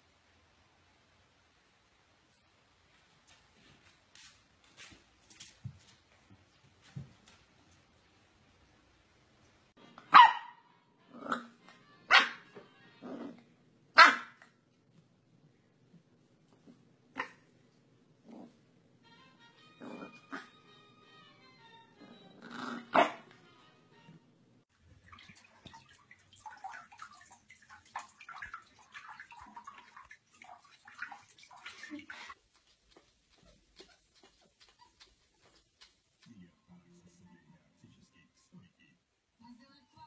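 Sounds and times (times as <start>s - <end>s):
puppy barking: 10.0s - 11.5s, 12.1s - 12.5s, 14.0s - 14.5s, 22.8s - 23.3s
puppy growling: 13.0s - 13.4s, 18.2s - 18.7s, 19.8s - 20.5s, 22.0s - 23.2s
small water splashes and drips: 24.7s - 33.6s.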